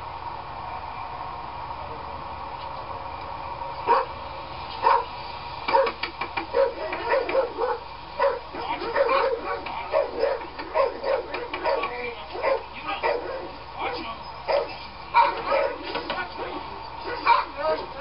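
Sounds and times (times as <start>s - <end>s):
dog barking: 3.9s - 4.1s, 4.8s - 5.1s, 5.7s - 13.6s, 14.4s - 16.0s, 17.0s - 17.6s.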